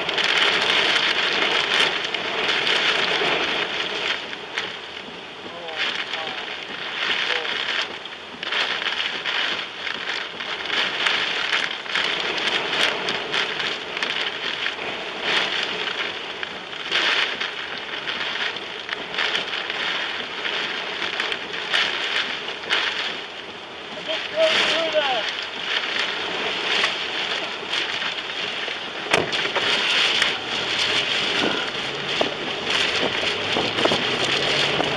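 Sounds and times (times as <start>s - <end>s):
heavy rain ticking on a car: 0.0s - 34.9s
car driving: 17.3s - 34.9s
strong wind rushing: 23.8s - 34.9s.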